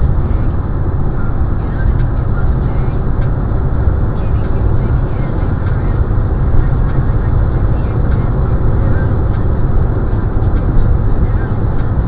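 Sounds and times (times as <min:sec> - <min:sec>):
car cabin road noise: 0:00.0 - 0:12.0.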